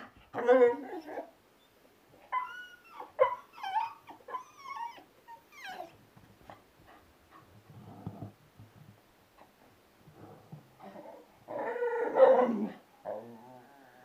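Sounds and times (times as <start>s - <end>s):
dog whining: 2.3s - 6.0s.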